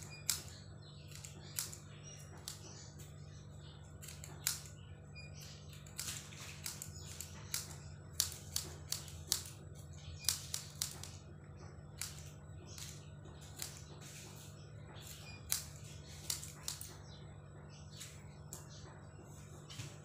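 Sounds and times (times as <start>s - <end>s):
scissors snipping hair: 0.0s - 2.7s, 4.0s - 4.7s, 5.7s - 9.6s, 10.2s - 11.2s, 12.0s - 13.9s, 15.0s - 17.0s
steady low hum: 0.0s - 20.0s.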